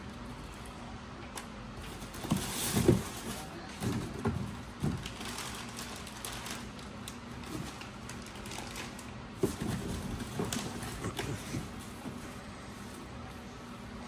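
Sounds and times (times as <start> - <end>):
cardboard packing handled: 1.8 - 12.4
plastic wrapping rustling: 1.8 - 12.9.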